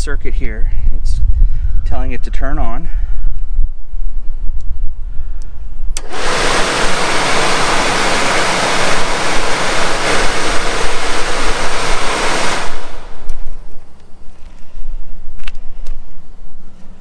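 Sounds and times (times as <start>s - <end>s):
blower rushing air: 5.9s - 13.9s.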